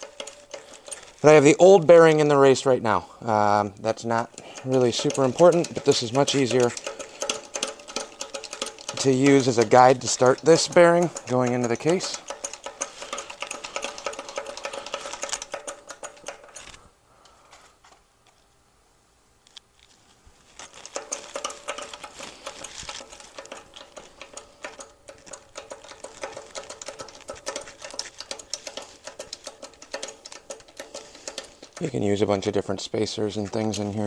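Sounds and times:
shop press mechanical clicking: 0.0s - 1.4s, 4.1s - 16.8s, 21.0s - 32.0s.

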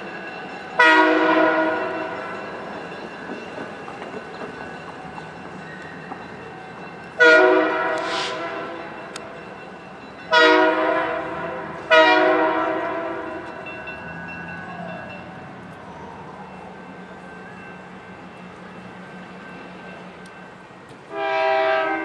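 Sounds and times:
locomotive air horn blasts: 0.8s - 1.9s, 7.2s - 8.9s, 10.3s - 13.5s, 21.1s - 22.0s.

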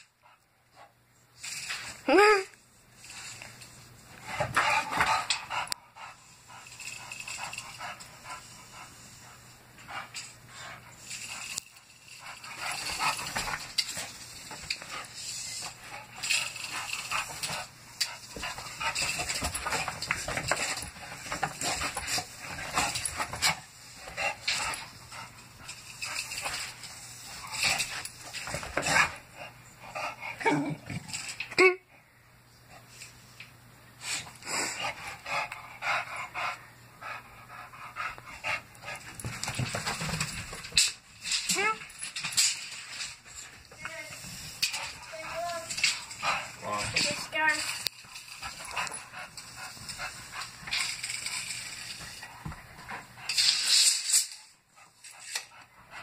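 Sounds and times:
dog panting: 4.2s - 30.4s, 34.2s - 40.2s, 43.1s - 51.0s.

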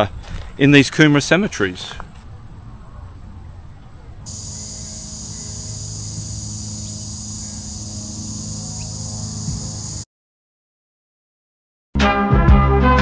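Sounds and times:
cicadas droning: 0.0s - 10.1s
low steady hum: 2.4s - 10.0s.

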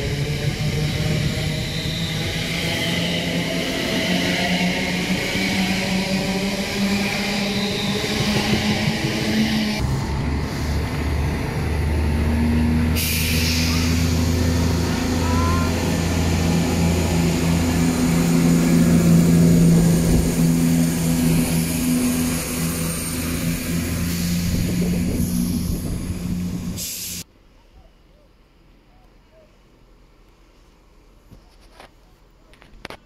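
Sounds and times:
diesel engines humming: 0.0s - 27.2s
air release hiss: 13.0s - 14.5s, 26.7s - 27.3s.

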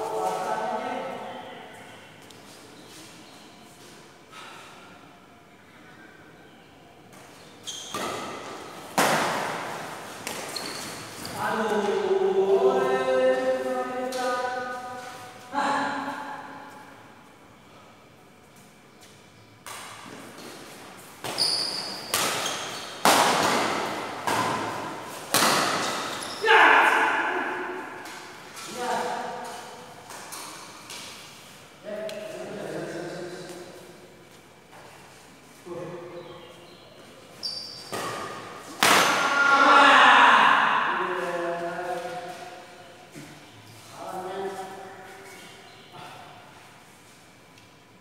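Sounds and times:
shoes squeaking on court: 7.1s - 12.0s, 18.6s - 26.4s, 36.4s - 38.8s
racket hitting shuttlecock: 7.9s - 10.6s, 21.2s - 28.4s, 37.9s - 39.4s.

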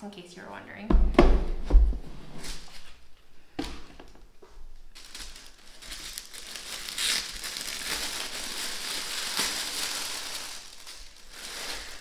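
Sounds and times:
tissue paper crinkling: 4.9s - 12.0s.

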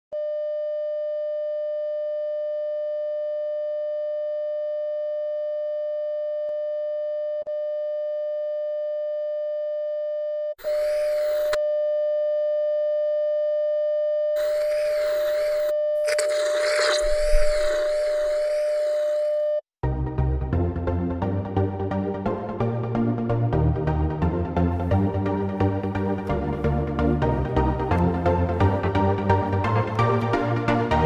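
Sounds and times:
electronic test tone: 10.6s - 11.6s, 14.4s - 19.4s
hissing warbling static: 10.6s - 11.6s, 14.4s - 19.4s.

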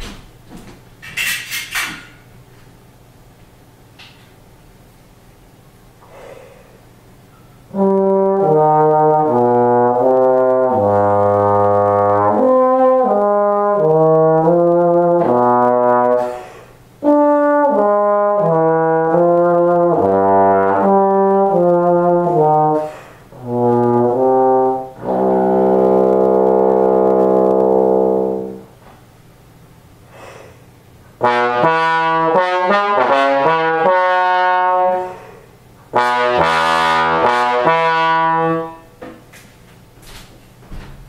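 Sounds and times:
bass trombone playing notes: 7.6s - 28.8s, 31.1s - 39.0s.

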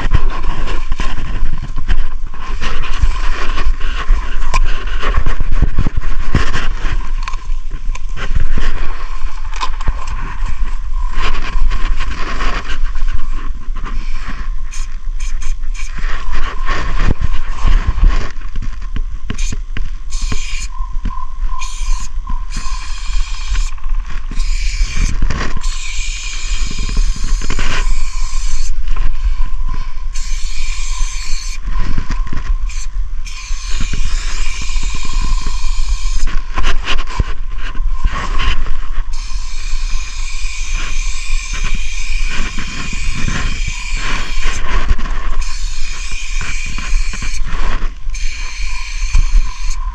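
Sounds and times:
spray paint can hissing: 14.0s - 16.0s, 19.4s - 20.7s, 21.6s - 23.7s, 24.3s - 28.8s, 30.1s - 31.6s, 32.7s - 36.3s, 39.1s - 44.7s, 45.4s - 47.5s, 48.1s - 49.8s
low rumble: 20.7s - 30.2s.

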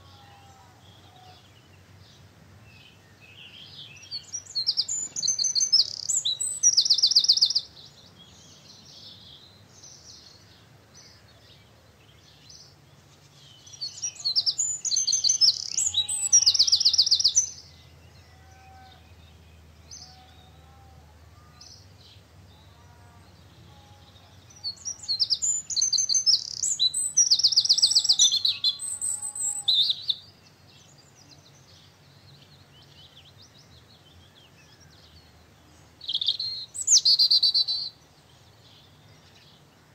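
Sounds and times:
songbird trilled song: 0.0s - 39.9s.

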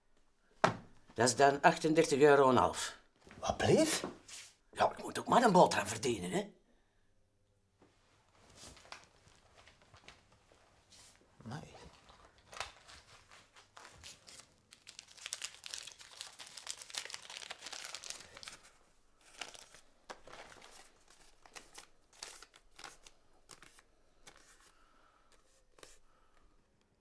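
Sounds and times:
wrapping crinkling and rustling: 8.3s - 24.7s.

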